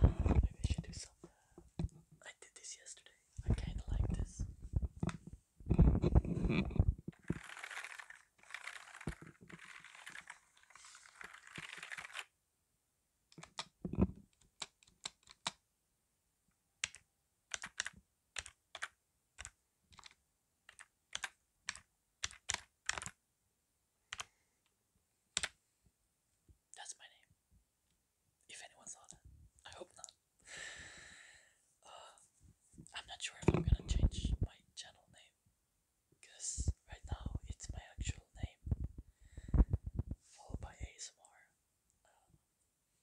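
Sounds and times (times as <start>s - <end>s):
keyboard rustling: 6.0s - 12.3s, 16.8s - 23.2s
keyboard keys clicking: 11.2s - 12.2s, 16.8s - 23.1s.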